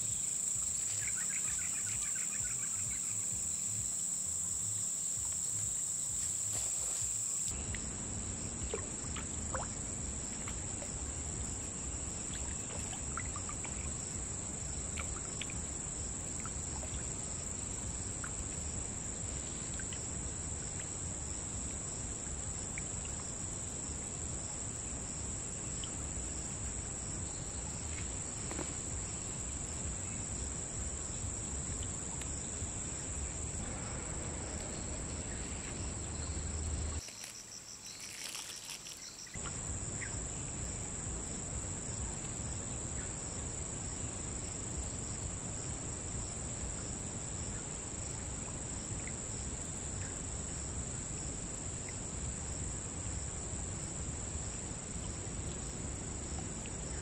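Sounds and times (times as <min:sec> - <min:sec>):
insects droning: 0:00.0 - 0:57.0
pulsing insect sound: 0:00.0 - 0:57.0
low rumble: 0:32.6 - 0:37.0.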